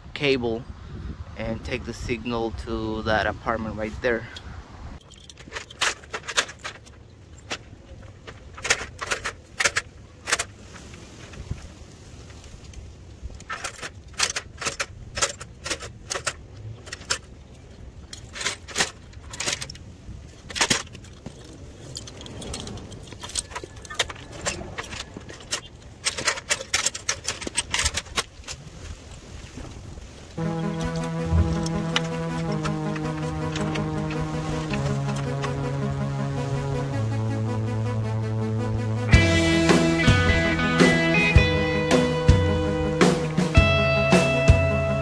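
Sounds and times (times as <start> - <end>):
low wind rumble on microphone: 0.0 - 5.4, 27.4 - 37.6
metal tools jangling on belt: 5.0 - 7.6, 20.4 - 28.1.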